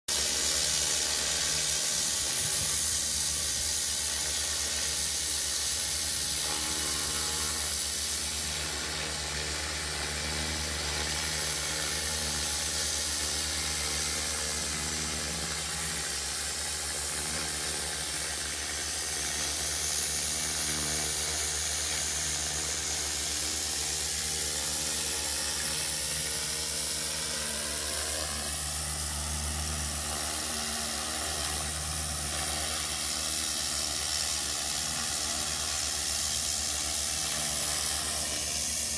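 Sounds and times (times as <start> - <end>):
pressure washer humming: 0.1 - 38.9
water jet spraying on roof tiles: 0.1 - 38.9.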